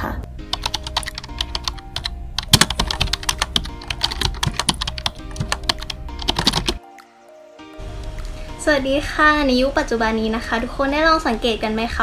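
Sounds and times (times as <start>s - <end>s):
keyboard typing: 0.5s - 7.1s.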